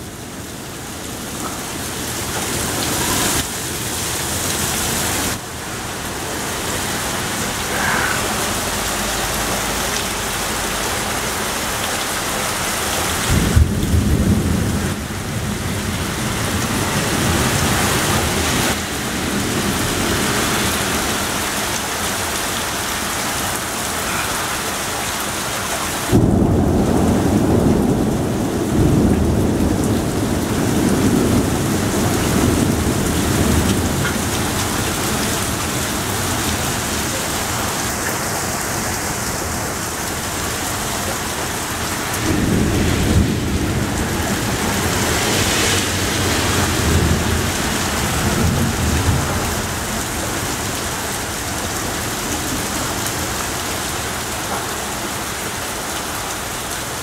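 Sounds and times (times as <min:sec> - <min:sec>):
heavy rain pouring: 0:00.0 - 0:57.0
thunder rolling: 0:13.3 - 0:17.6, 0:42.0 - 0:50.0.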